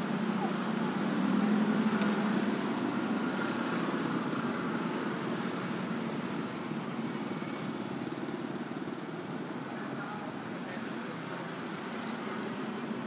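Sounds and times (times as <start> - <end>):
scooters and cars passing: 0.0 - 13.0.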